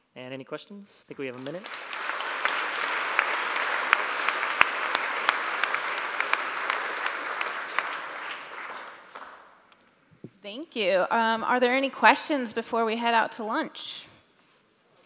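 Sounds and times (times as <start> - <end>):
audience applauding: 1.2 - 9.7.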